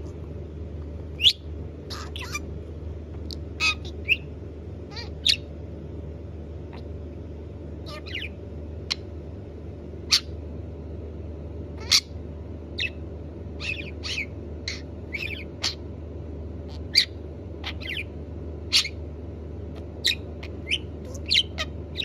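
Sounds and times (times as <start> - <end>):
budgerigar chirping: 1.2 - 2.4, 3.6 - 4.3, 4.9 - 5.5, 7.9 - 9.0, 11.8 - 12.1, 12.8 - 13.0, 13.6 - 15.8, 16.7 - 18.1, 18.7 - 19.0, 19.8 - 22.0.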